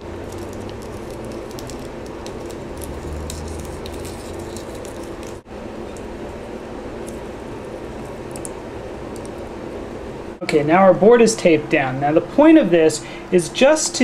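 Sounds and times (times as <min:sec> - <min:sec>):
plastic tape crinkling: 0:00.0 - 0:05.5, 0:07.0 - 0:09.4
steady low hum: 0:00.0 - 0:14.0.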